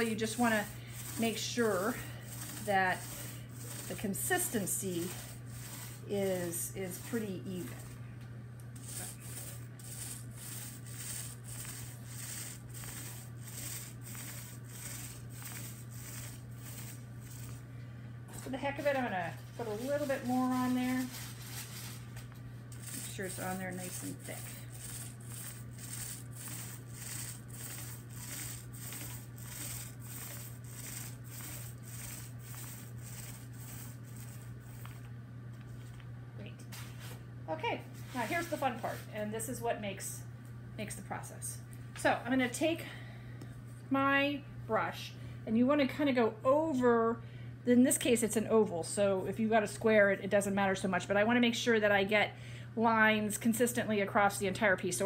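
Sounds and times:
paint roller swishing: 0.0s - 8.0s, 8.8s - 17.7s, 18.3s - 36.0s, 38.0s - 39.2s.

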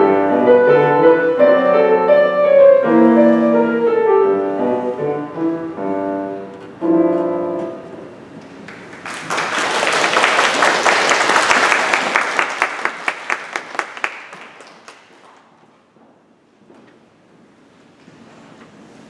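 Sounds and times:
piano chord: 0.0s - 8.3s
audience applauding: 8.6s - 15.5s.

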